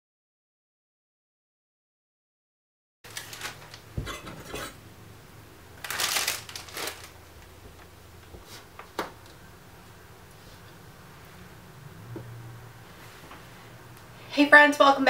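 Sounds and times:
noisy rustle or scrape: 0:12.8 - 0:13.8.

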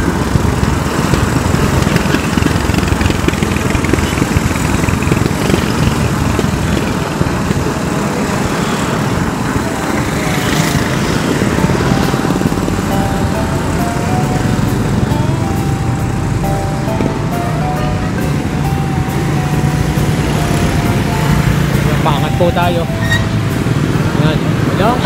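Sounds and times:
wind buffeting microphone: 0:00.0 - 0:17.4
motorcycle engines in traffic: 0:00.0 - 0:25.0.

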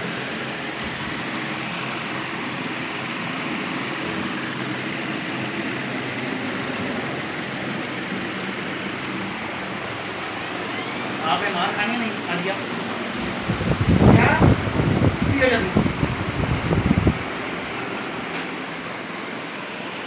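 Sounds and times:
electric fan running: 0:00.0 - 0:20.0.

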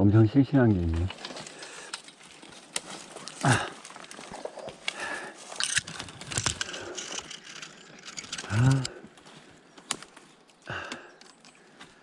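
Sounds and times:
brush and dry leaves rustling: 0:00.6 - 0:12.0
twig snaps and clicks: 0:01.1 - 0:07.3, 0:09.8 - 0:11.5.

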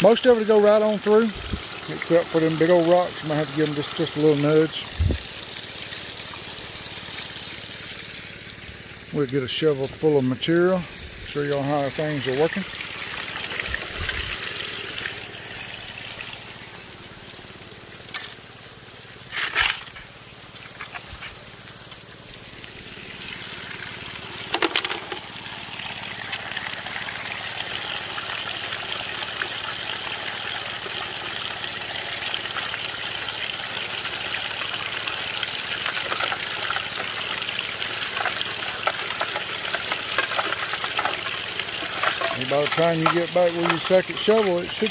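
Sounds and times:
water spraying and running: 0:00.0 - 0:44.9
gravel crackling in turning barrel: 0:05.6 - 0:44.9.

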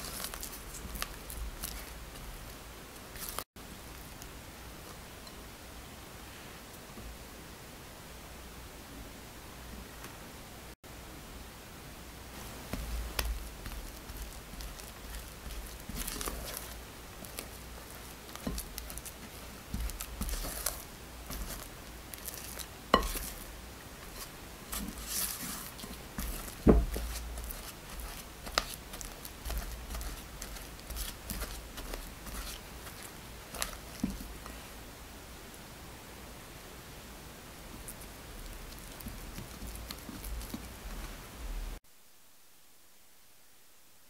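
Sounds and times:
spatula squishing dough: 0:00.0 - 0:05.4, 0:12.3 - 0:34.8, 0:37.6 - 0:41.6.

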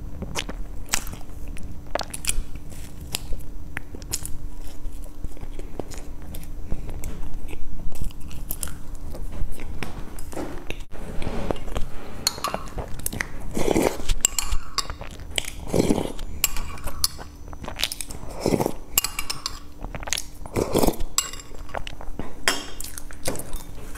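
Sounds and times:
person chewing: 0:00.0 - 0:23.9
metal spoon clinking on bowl: 0:14.2 - 0:15.0, 0:19.0 - 0:19.7, 0:21.2 - 0:21.8.

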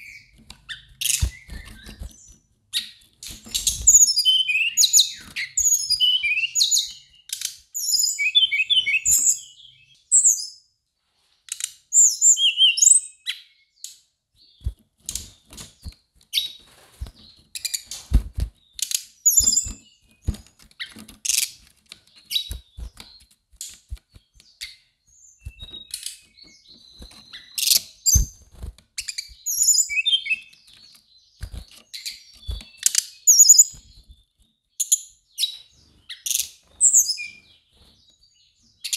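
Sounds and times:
bird singing whistled phrases: 0:03.7 - 0:07.2, 0:07.8 - 0:10.6, 0:12.0 - 0:13.4, 0:29.1 - 0:30.5, 0:32.1 - 0:33.8.

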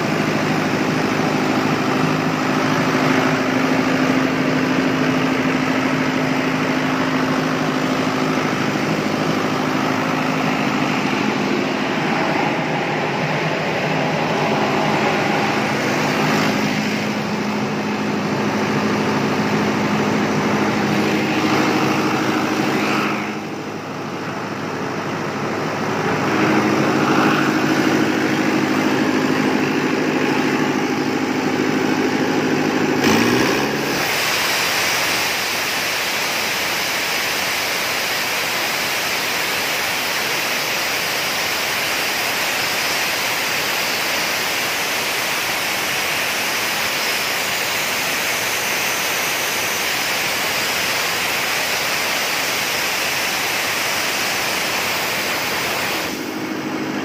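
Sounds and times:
air compressor engine hum: 0:00.0 - 0:57.0.

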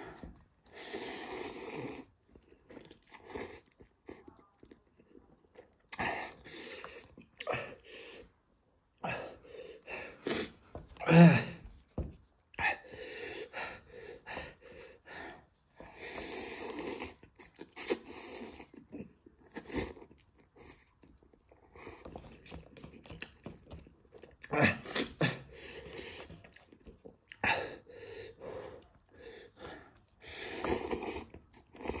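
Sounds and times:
slurping noodles: 0:00.0 - 0:04.2, 0:15.8 - 0:23.0, 0:24.3 - 0:32.0
person chewing: 0:00.0 - 0:08.3, 0:15.8 - 0:32.0
person sniffing: 0:09.1 - 0:11.5
heavy breathing: 0:12.6 - 0:16.4, 0:27.4 - 0:30.8.

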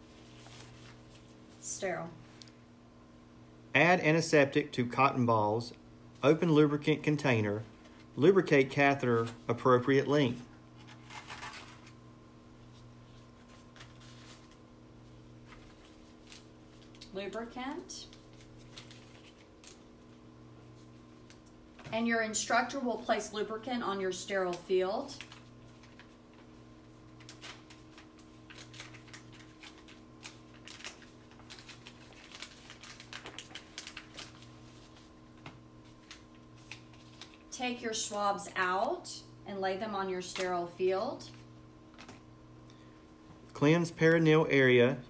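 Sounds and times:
faint plastic rustling: 0:00.0 - 0:02.6, 0:10.4 - 0:22.0, 0:24.4 - 0:37.5
steady low hum: 0:00.0 - 0:45.0
plastic packaging crinkling: 0:10.7 - 0:12.0, 0:12.7 - 0:14.7, 0:15.4 - 0:17.2, 0:17.8 - 0:21.5, 0:24.4 - 0:37.5.

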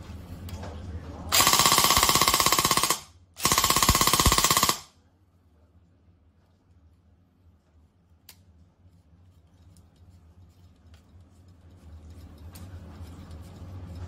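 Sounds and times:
airsoft rifle full-auto bursts: 0:01.3 - 0:04.9.

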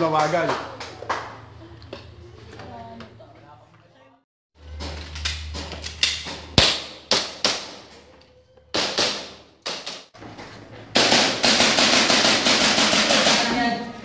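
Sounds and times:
airsoft pistol shots: 0:06.5 - 0:07.8, 0:11.0 - 0:13.5.

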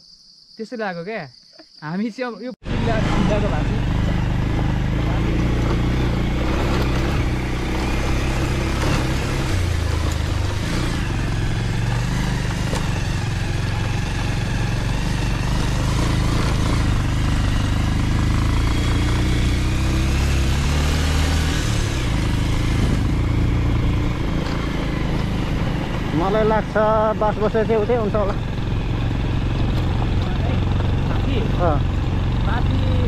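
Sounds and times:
wind: 0:00.0 - 0:33.0
motorcycle engine running: 0:02.6 - 0:33.0
tyres on gravel: 0:03.9 - 0:19.2, 0:23.1 - 0:33.0.

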